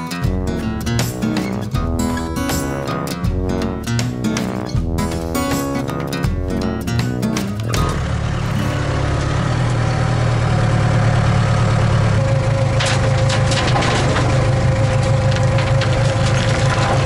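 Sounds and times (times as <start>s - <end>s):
diesel engine running: 0.2s - 17.0s
dirt and rock crunching: 12.6s - 17.0s.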